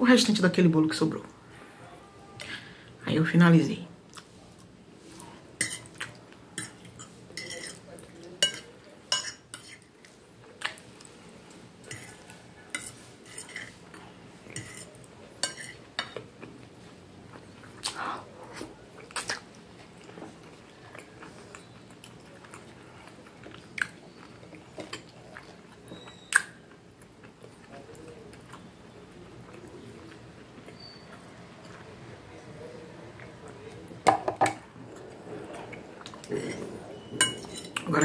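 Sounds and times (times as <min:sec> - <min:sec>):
chewing and eating: 0:04.1 - 0:09.0, 0:09.6 - 0:37.9
fork and knife clinking on a plate: 0:06.6 - 0:07.8, 0:08.4 - 0:09.8, 0:14.6 - 0:16.2, 0:36.4 - 0:38.0.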